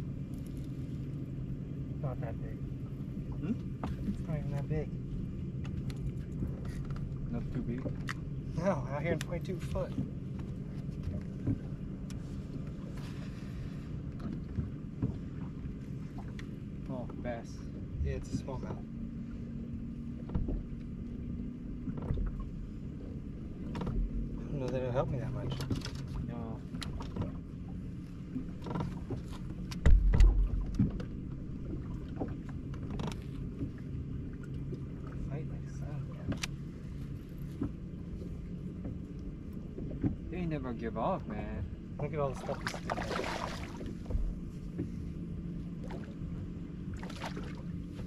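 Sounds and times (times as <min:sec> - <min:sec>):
boat low hum: 0:00.0 - 0:48.0
wind and water rumble: 0:00.0 - 0:48.0
heavy low thump: 0:29.8 - 0:31.1
light clicks: 0:36.3 - 0:36.6.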